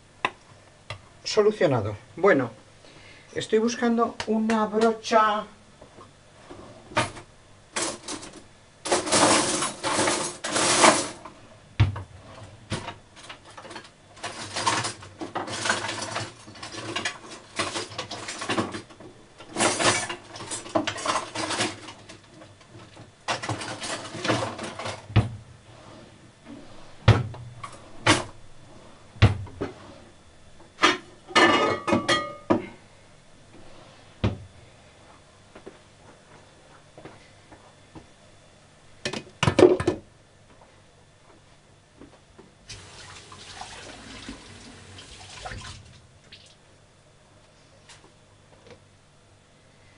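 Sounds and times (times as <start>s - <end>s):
kitchen utensils and dishes clattering: 7.8s - 11.2s, 13.5s - 18.9s, 19.5s - 22.0s, 23.3s - 25.1s, 30.8s - 32.5s.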